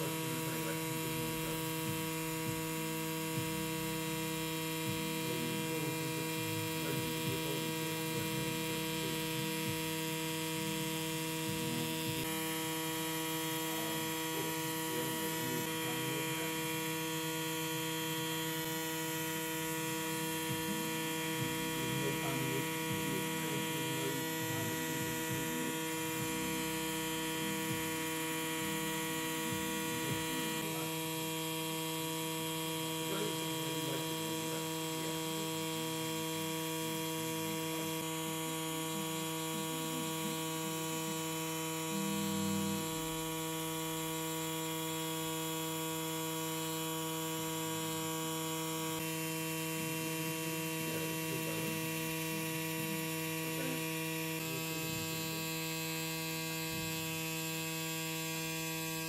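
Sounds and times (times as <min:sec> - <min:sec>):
tattoo machine motor hum: 0:00.0 - 0:59.0.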